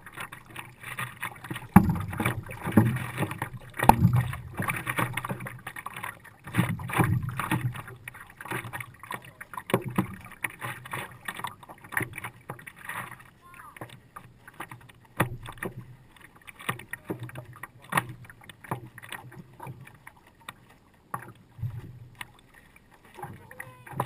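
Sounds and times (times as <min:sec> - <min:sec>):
paddle splashes: 0:00.0 - 0:24.0
water slapping against a paddleboard: 0:00.0 - 0:24.0
sharp knocks: 0:01.7 - 0:02.9, 0:03.8 - 0:04.7.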